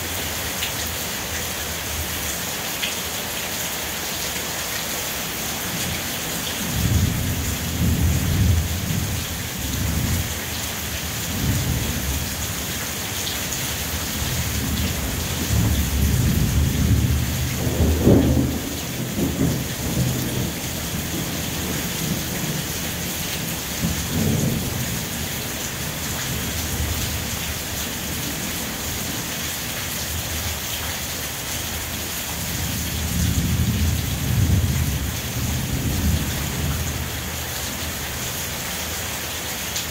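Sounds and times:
steady rain: 0.0 - 39.9
rolling thunder: 14.3 - 22.7.

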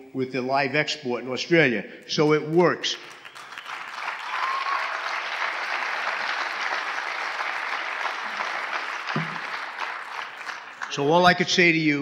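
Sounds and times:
audience applauding: 3.0 - 11.4.

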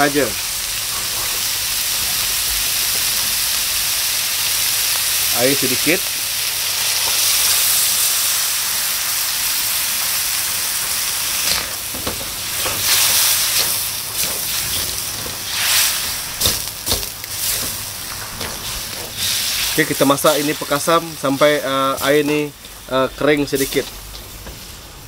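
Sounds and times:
meat sizzling in a wok: 0.0 - 25.0
spatula scraping wok: 10.7 - 25.0.

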